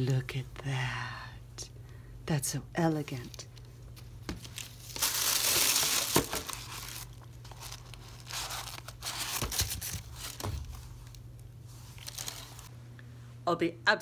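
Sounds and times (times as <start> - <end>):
tissue paper rustling and crinkling: 4.4 - 12.7.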